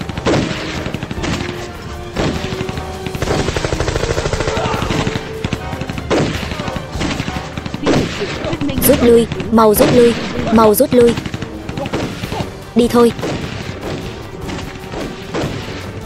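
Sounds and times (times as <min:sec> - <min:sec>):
rapid automatic gunfire: 0:00.0 - 0:01.6, 0:02.2 - 0:10.3, 0:11.0 - 0:12.4.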